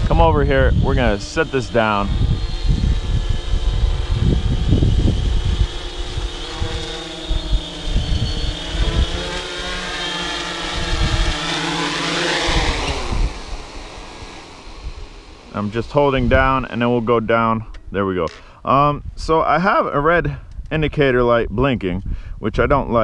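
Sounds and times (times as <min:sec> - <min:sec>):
drone motors whining: 0:00.0 - 0:18.5
prop wash on microphone: 0:09.8 - 0:17.6.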